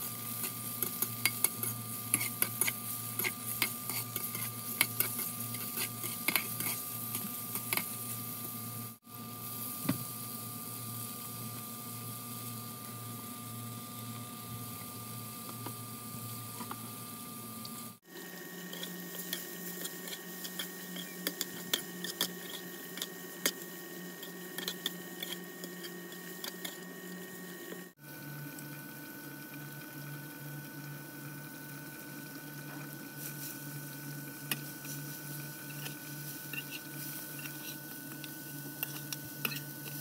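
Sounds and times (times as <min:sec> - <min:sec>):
metal spatula scraping a pan: 0:00.3 - 0:08.0, 0:18.7 - 0:26.8, 0:35.7 - 0:37.9, 0:38.8 - 0:40.0.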